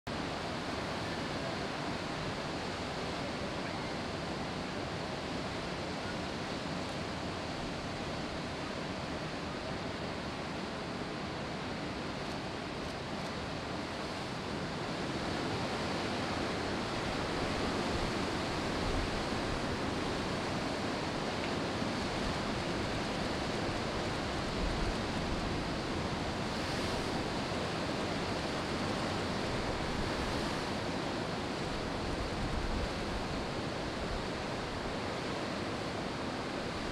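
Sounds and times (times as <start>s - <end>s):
ocean surf breaking: 0.1s - 36.9s.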